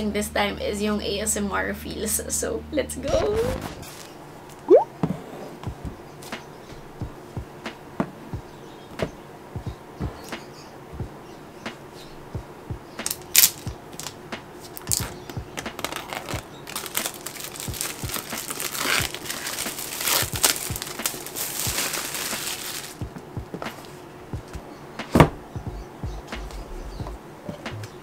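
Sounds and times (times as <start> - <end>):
plastic wrap crinkling and tearing: 3.8 - 4.2, 13.0 - 23.1.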